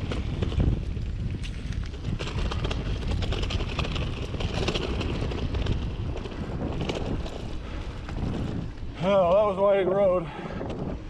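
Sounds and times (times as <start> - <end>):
bike rattling and clicking: 0.0 - 11.0
bike tyres on loose dirt: 0.0 - 11.0
wind rumble on microphone: 0.0 - 11.0.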